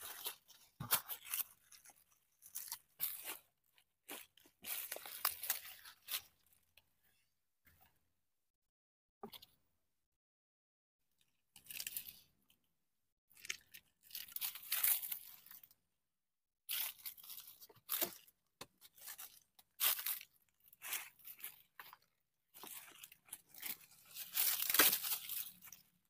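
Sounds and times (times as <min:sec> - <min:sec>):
dry leaves crunching: 0:04.1 - 0:06.2, 0:19.0 - 0:21.6, 0:22.6 - 0:25.8.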